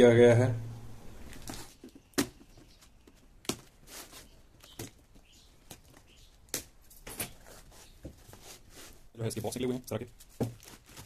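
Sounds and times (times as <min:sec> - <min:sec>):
cardboard knocks and taps: 0:10.4 - 0:10.8
box flaps and tape rustling: 0:10.4 - 0:11.0.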